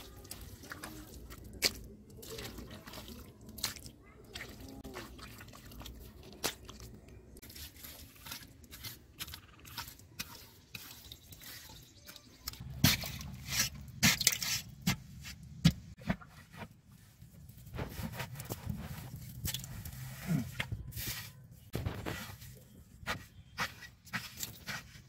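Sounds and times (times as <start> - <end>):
water drips: 0.0 - 7.4
hands digging in wet mud: 0.1 - 16.3, 17.4 - 25.0
wet squelches and thuds: 0.3 - 7.2, 12.4 - 25.0.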